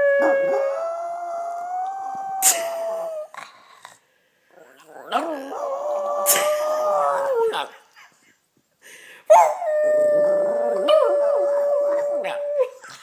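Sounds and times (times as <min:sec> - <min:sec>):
dog howling: 0:00.0 - 0:03.3, 0:09.5 - 0:12.8.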